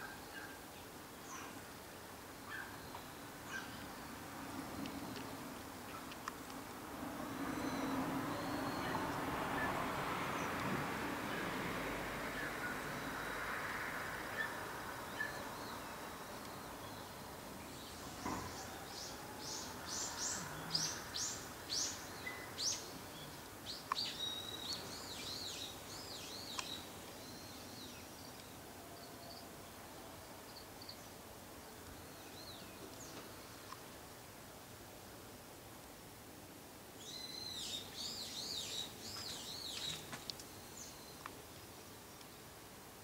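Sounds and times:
faint background hiss: 0.0 - 43.0
small bird singing: 7.5 - 9.8, 15.1 - 29.5, 37.0 - 41.8.

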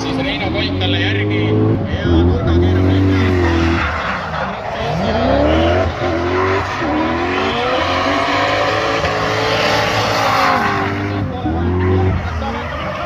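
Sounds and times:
car engines revving: 0.0 - 13.0
tyre squeal: 2.8 - 13.0.

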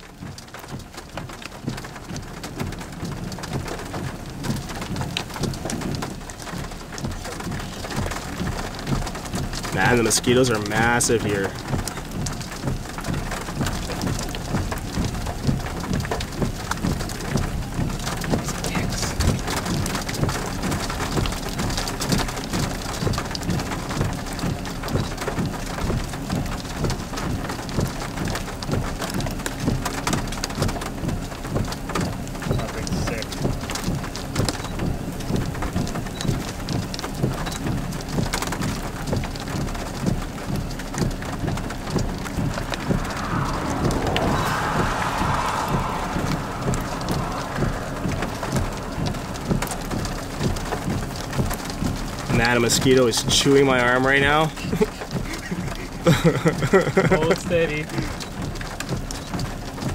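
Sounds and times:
low thumps and crackles: 0.0 - 57.1
storm wind rushing: 41.0 - 52.5.

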